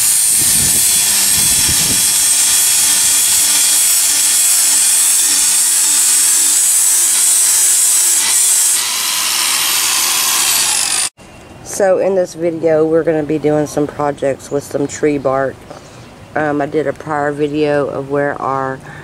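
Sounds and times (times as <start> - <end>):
angle grinder grinding wood: 0.0 - 11.2.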